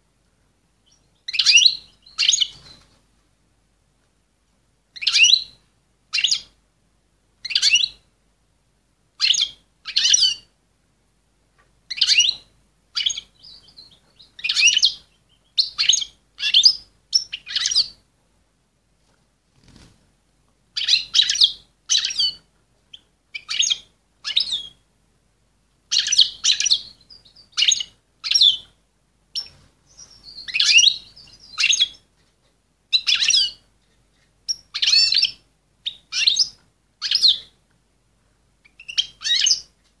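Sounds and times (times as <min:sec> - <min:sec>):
goldfinch twittering calls: 0:00.9 - 0:02.8, 0:05.0 - 0:05.5, 0:06.1 - 0:06.5, 0:07.4 - 0:07.9, 0:09.2 - 0:10.4, 0:11.9 - 0:12.4, 0:13.0 - 0:17.9, 0:20.8 - 0:24.8, 0:25.9 - 0:28.7, 0:29.3 - 0:32.0, 0:32.9 - 0:33.6, 0:34.5 - 0:37.5, 0:38.6 - 0:39.7.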